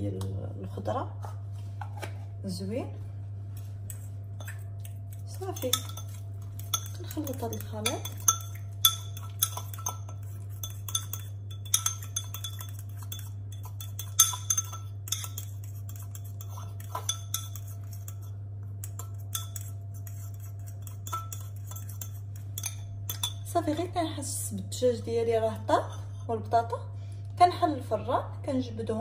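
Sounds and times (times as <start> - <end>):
steady low hum: 0.0 - 29.0
fork clinking and scraping bowl: 3.9 - 23.9.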